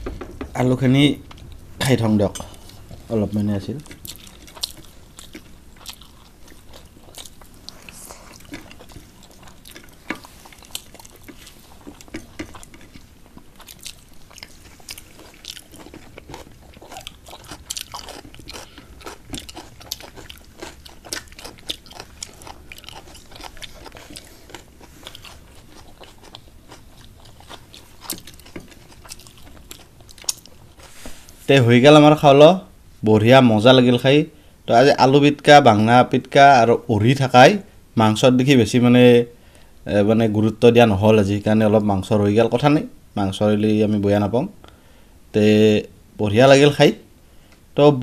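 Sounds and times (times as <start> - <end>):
chewing and crunching: 2.4 - 31.0.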